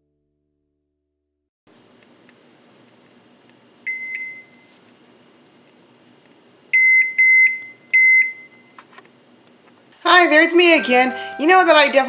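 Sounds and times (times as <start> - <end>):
oven control panel beeping: 6.8 - 8.6.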